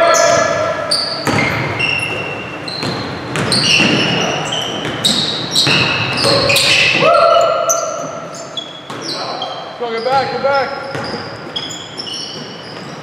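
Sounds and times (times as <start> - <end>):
sneakers squeaking on court: 0.0 - 13.0
basketball dribbling: 1.2 - 6.8, 10.0 - 13.0.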